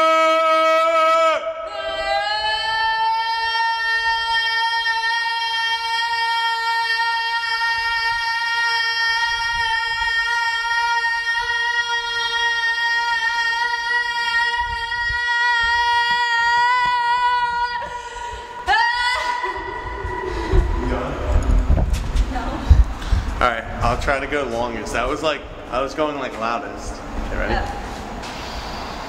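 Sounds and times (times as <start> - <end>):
woman singing a long high note: 1.6 - 20.9.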